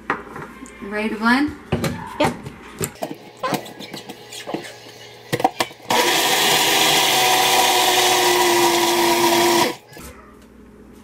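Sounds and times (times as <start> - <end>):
blender motor whirring: 5.3 - 9.9.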